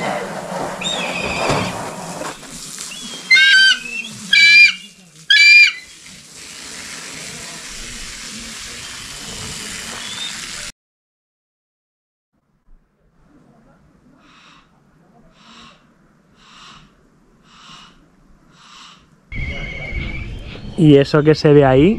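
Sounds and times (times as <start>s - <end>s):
eagle calling: 2.9s - 6.1s, 14.2s - 21.6s.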